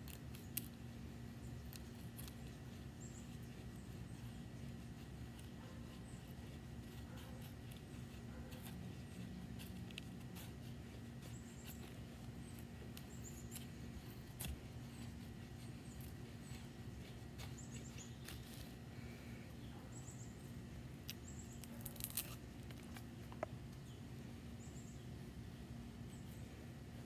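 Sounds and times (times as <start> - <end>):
knife scraping wood: 1.7 - 18.8.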